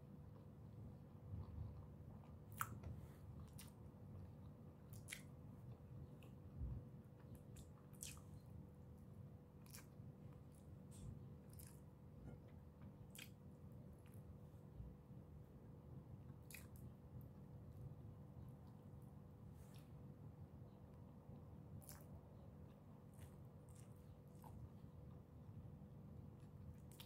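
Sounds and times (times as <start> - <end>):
faint steady hum: 0.0 - 27.0
person chewing food: 1.3 - 8.5, 9.6 - 14.3, 16.3 - 16.9, 21.7 - 25.3, 26.3 - 27.0.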